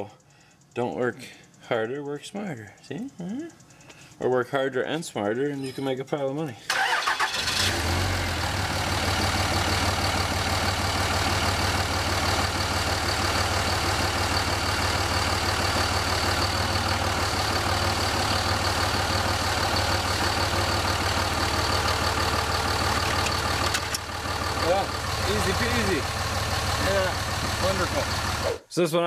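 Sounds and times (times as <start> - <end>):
pickup engine idling: 6.7 - 28.6.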